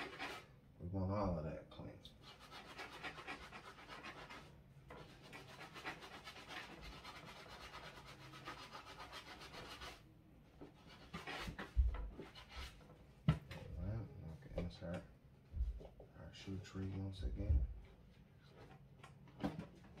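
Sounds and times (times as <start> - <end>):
brush scrubbing a sneaker: 0.0 - 0.4, 2.2 - 10.0.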